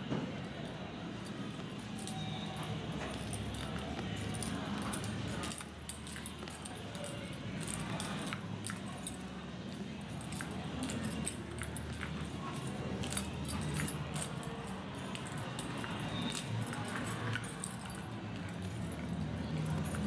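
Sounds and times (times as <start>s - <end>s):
light clicks and jingles: 0.3s - 20.0s.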